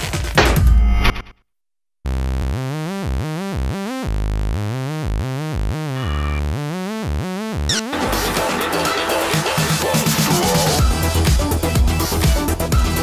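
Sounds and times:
pulsing synthesizer music: 0:02.1 - 0:11.3.

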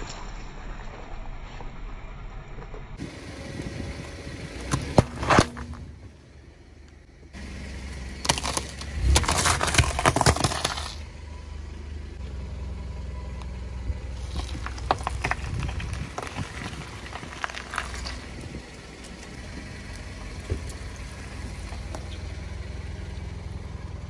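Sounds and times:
car engine idling: 0:01.9 - 0:24.0
sharp cracks: 0:08.2 - 0:11.0
tyre crushing potatoes: 0:08.2 - 0:11.0.

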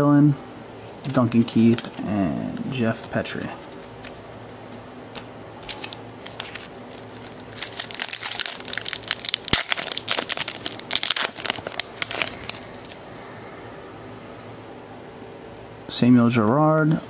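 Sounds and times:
plastic foil wrapper crinkling: 0:05.6 - 0:13.0.

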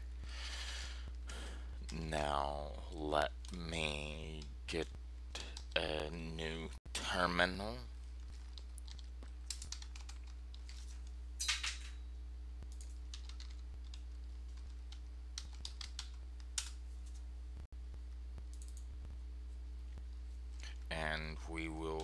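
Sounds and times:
steady low hum: 0:00.0 - 0:22.0
computer keyboard keys tapping: 0:08.2 - 0:10.8, 0:12.6 - 0:16.8, 0:18.4 - 0:18.9.

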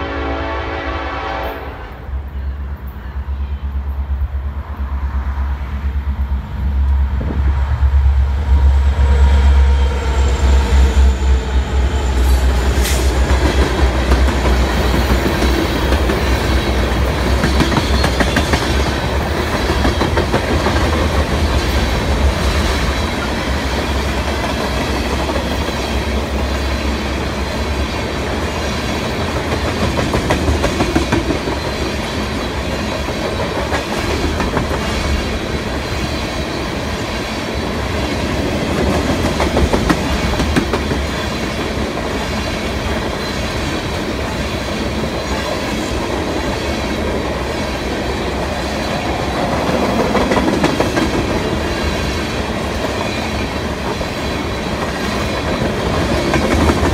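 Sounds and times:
diesel locomotive engine rumble: 0:00.0 - 0:56.9
train wheels clickety-clack: 0:11.7 - 0:56.9.

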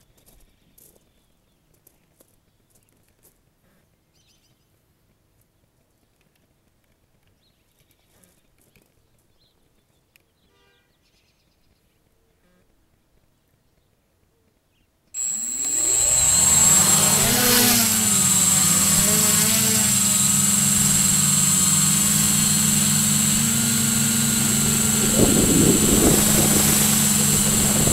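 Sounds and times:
faint trill: 0:15.2 - 0:27.9.

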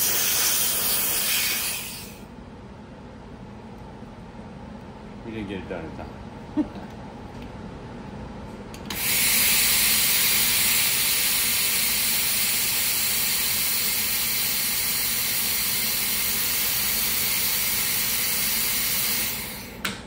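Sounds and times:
compressed air hissing from nozzle: 0:00.0 - 0:02.2, 0:08.9 - 0:19.8.

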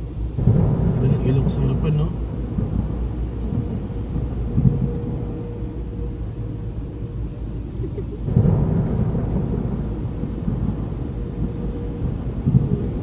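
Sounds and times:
deep rumbling: 0:00.0 - 0:13.0.

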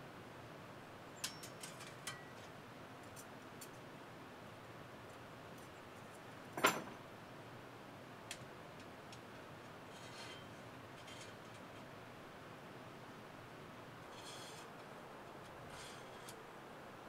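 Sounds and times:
faint metallic ring: 0:01.2 - 0:02.4, 0:09.9 - 0:11.4, 0:14.1 - 0:14.7.

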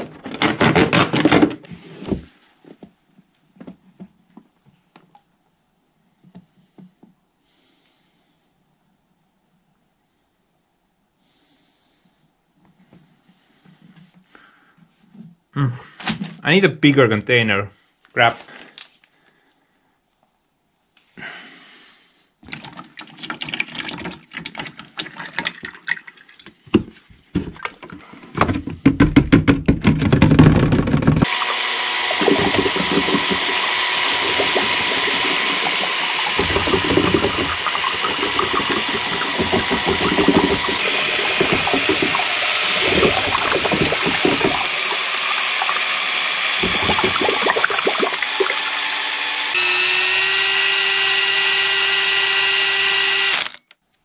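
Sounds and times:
liquid being poured: 0:22.4 - 0:26.6, 0:31.2 - 0:48.9
cordless drill mixer whining: 0:30.5 - 0:53.7.

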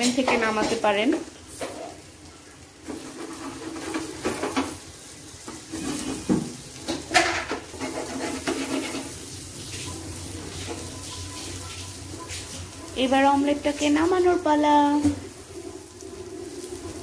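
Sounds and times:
oil sizzling: 0:00.0 - 0:17.0
spatula scraping frying pan: 0:02.8 - 0:13.0.

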